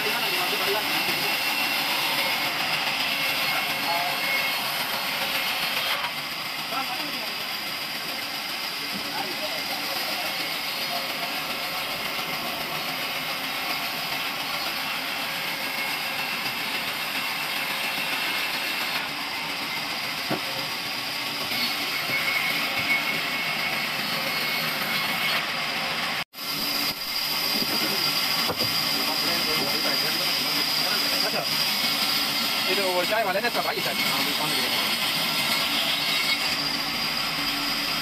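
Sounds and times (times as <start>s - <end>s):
band saw whirring: 0.0s - 38.0s.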